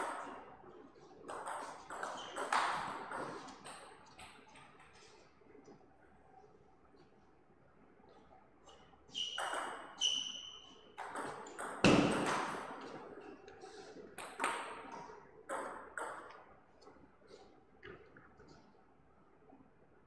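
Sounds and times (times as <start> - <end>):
table tennis ball pinging: 9.3 - 12.7.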